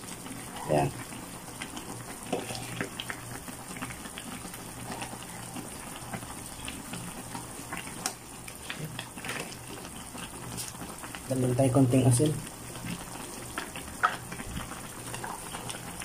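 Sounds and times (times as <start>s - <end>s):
ladle stirring broth: 0.0s - 11.2s
soup boiling and bubbling: 0.0s - 16.0s.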